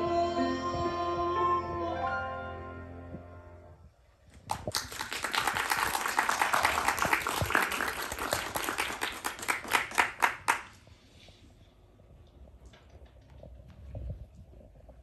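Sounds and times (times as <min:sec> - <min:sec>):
audience applauding: 0:04.4 - 0:10.8.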